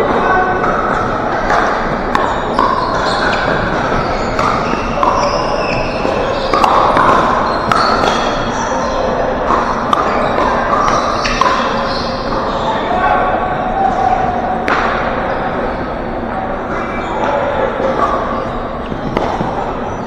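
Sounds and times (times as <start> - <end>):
shoes squeaking on hardwood floor: 1.9 - 12.9.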